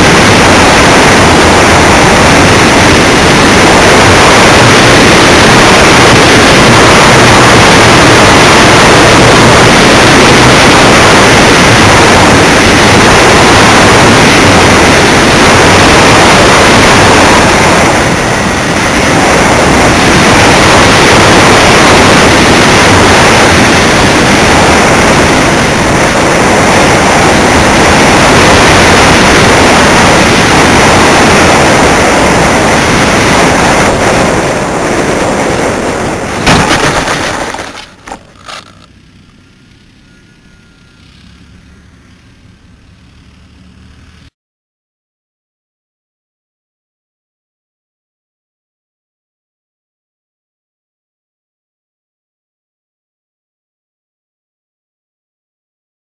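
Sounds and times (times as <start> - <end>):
rushing airflow: 0.0 - 38.6
model airplane motor: 0.0 - 44.3.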